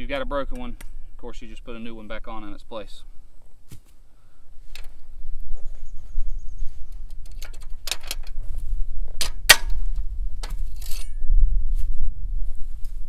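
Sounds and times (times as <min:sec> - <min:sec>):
loose metal rattling: 0:07.0 - 0:11.2.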